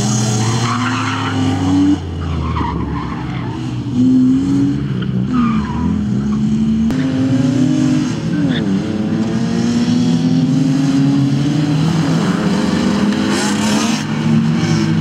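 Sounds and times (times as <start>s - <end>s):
car engine revving hard: 3.9s - 15.0s.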